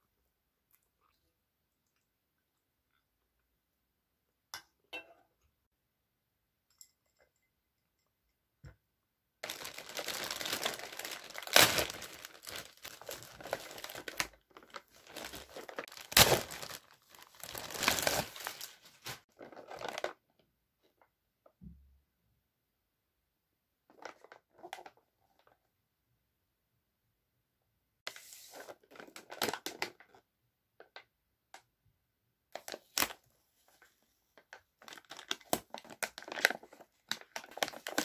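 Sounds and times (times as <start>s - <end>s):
plastic bag ripped and crumpled: 9.4s - 20.1s, 34.9s - 38.0s.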